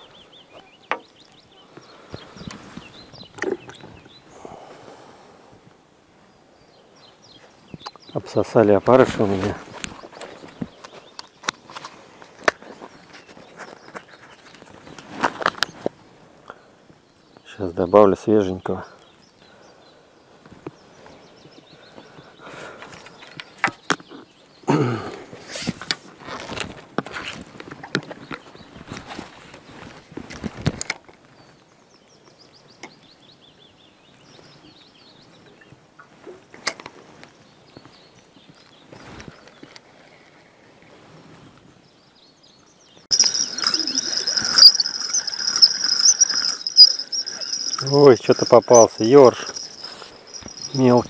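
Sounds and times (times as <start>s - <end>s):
bird chirps: 43.0s - 51.0s
fishing tackle clicks: 43.1s - 50.8s
small ticks: 43.1s - 50.8s
high-pitched insect chirring: 43.1s - 51.0s.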